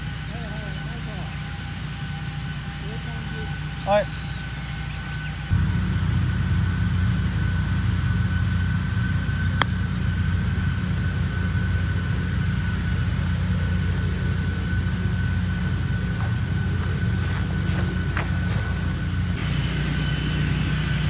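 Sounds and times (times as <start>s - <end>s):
steady low rumble: 0.0s - 21.0s
golf club striking ball: 9.5s - 9.8s.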